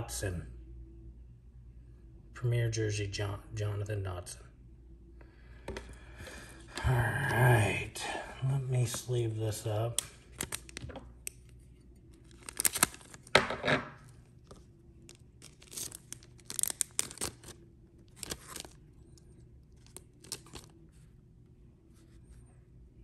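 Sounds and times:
plastic sleeve crinkling: 0:09.9 - 0:13.3, 0:14.1 - 0:21.0.

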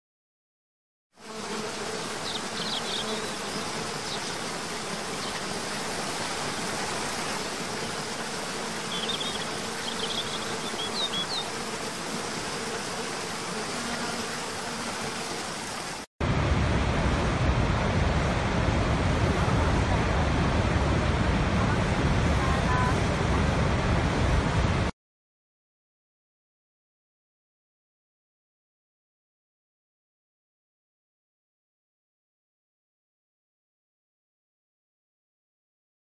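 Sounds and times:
low steady buzz: 0:01.2 - 0:24.9
wind: 0:01.2 - 0:24.9
bird chirps: 0:02.2 - 0:03.4, 0:08.9 - 0:11.5.

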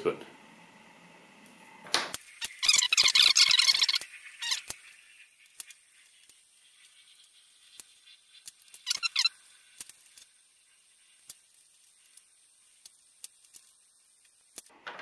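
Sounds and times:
wire clicking and rubbing: 0:02.1 - 0:14.8
plastic sheathing squeak: 0:08.7 - 0:09.4.

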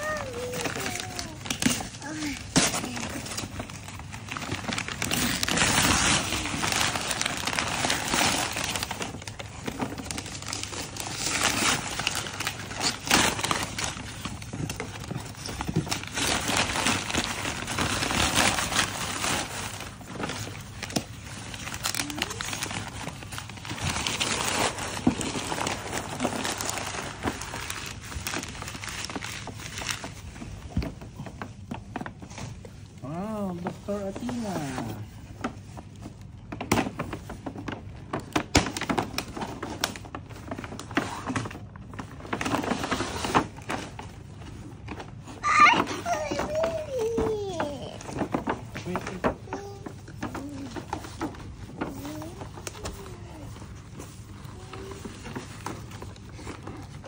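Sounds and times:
wrapping paper crinkling and tearing: 0:00.0 - 0:57.0.

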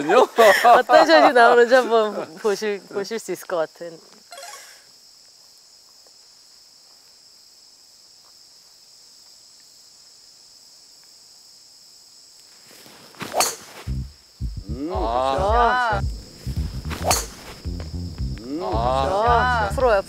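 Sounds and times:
high-pitched insect chirring: 0:04.2 - 0:05.2, 0:13.4 - 0:20.0
golf driver striking ball: 0:16.9 - 0:17.5.

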